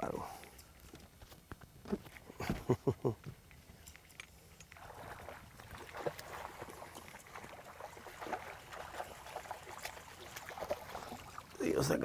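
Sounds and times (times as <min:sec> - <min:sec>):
fish splashing at water surface: 0:04.0 - 0:11.6.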